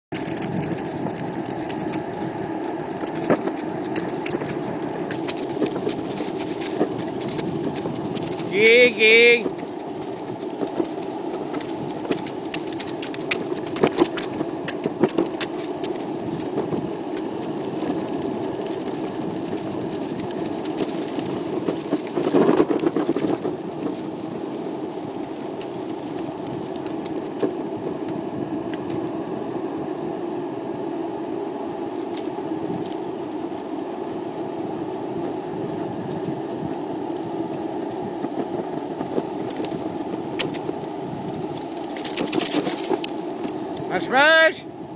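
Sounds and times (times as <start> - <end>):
skateboard wheels rolling on pavement: 0.1 - 44.9.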